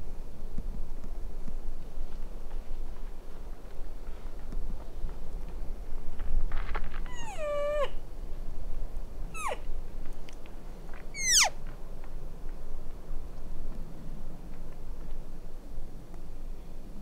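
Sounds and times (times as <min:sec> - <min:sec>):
elk mews: 0:09.4 - 0:09.7, 0:11.2 - 0:11.5.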